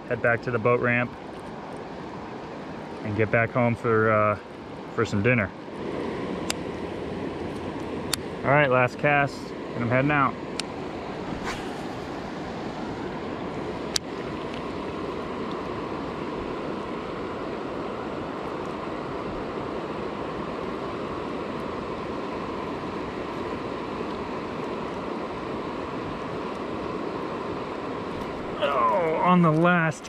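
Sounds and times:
river rushing over rapids: 10.7s - 30.0s.

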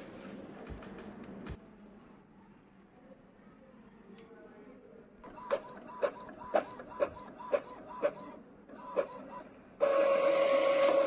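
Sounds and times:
printer motor whirring: 5.3s - 11.0s.

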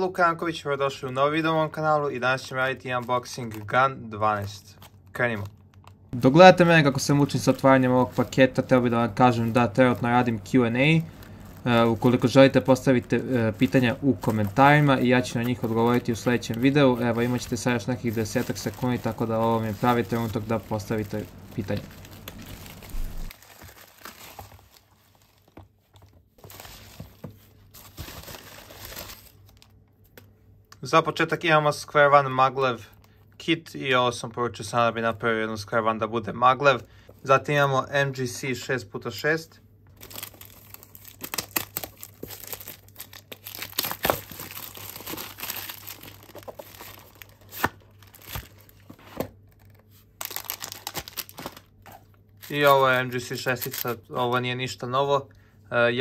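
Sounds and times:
plastic bag crinkling: 4.4s - 29.8s, 40.0s - 54.0s.

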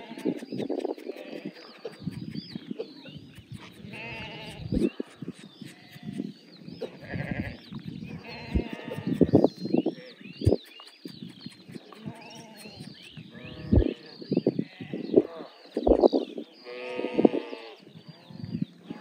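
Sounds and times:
sheep bleating: 0.0s - 0.4s, 3.8s - 4.7s, 6.8s - 9.3s, 16.6s - 17.8s.

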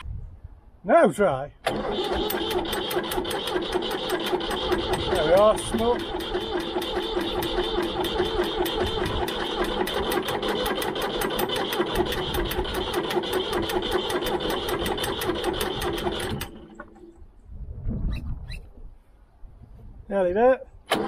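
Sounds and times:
tractor engine cranking: 1.6s - 17.0s.

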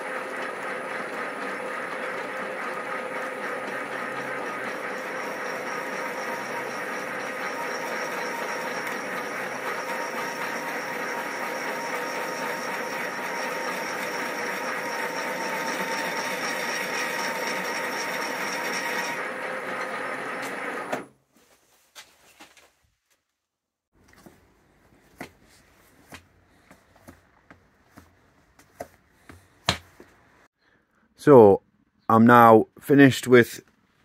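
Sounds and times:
milling machine whine: 0.0s - 21.1s.

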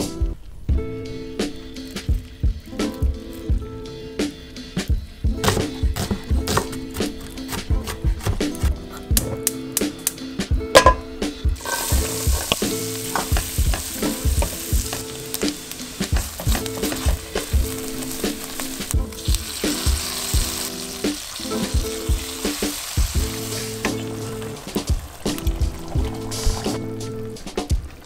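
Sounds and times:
background music with steady beat: 0.0s - 28.0s
wooden spatula stirring: 11.6s - 20.2s
food sizzling in a pan: 11.6s - 28.0s.

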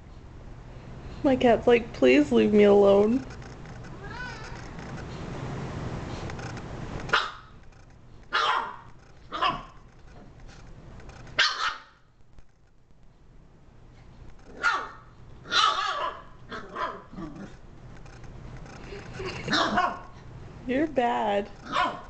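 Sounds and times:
dog barking: 7.1s - 7.5s, 8.3s - 9.8s, 11.4s - 12.0s, 14.6s - 17.1s, 19.5s - 20.1s, 21.7s - 22.0s.

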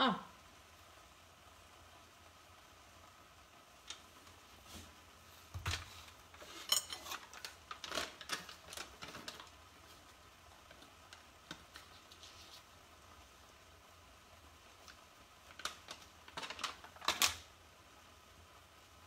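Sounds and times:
dishes and utensils clattering: 6.4s - 8.0s.

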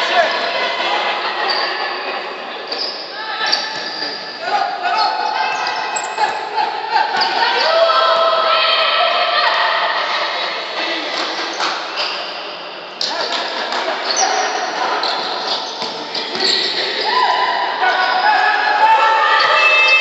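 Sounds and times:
people calling out: 0.0s - 11.5s, 13.0s - 20.0s
sneakers squeaking: 1.4s - 6.2s, 7.1s - 7.7s, 11.2s - 18.4s.

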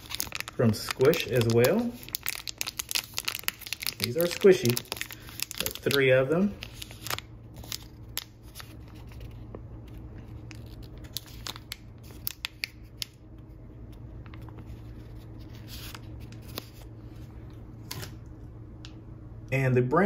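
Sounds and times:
plastic bag crinkling: 0.0s - 9.4s, 10.0s - 13.2s.

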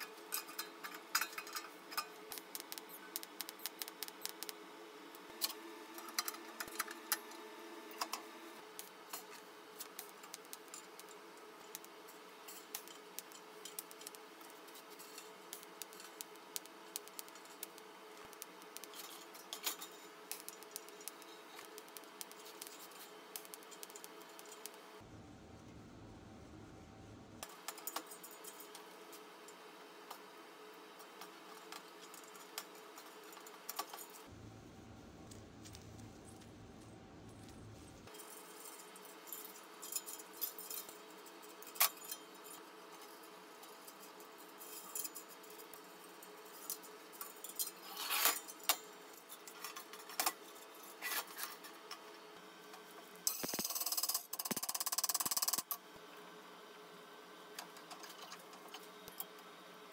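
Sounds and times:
faint steady hum: 0.0s - 59.9s
metal stove parts clinking: 0.3s - 2.1s.

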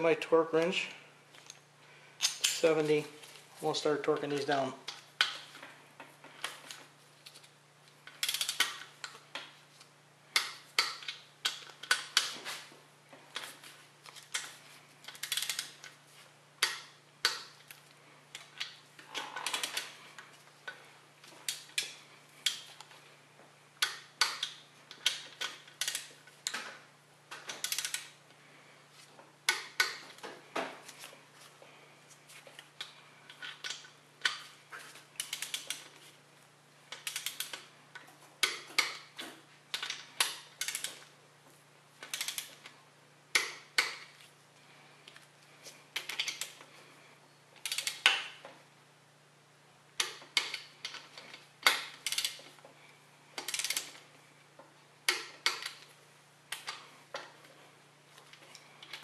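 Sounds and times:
torque wrench clicking: 8.1s - 8.9s, 15.1s - 15.8s, 27.4s - 28.1s, 35.2s - 35.9s, 36.9s - 37.6s, 42.0s - 42.6s, 47.6s - 48.3s, 51.6s - 52.4s, 53.4s - 54.0s.

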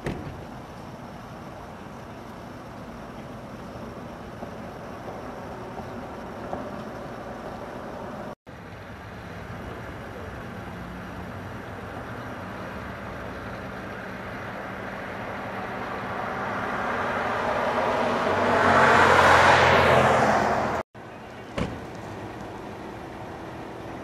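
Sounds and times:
quiet street hum: 0.0s - 24.0s
vehicle driving past: 12.2s - 20.8s.

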